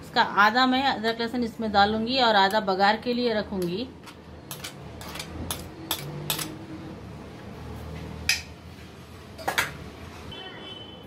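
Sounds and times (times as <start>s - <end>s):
metal spoon scraping ceramic plate: 4.0s - 6.6s.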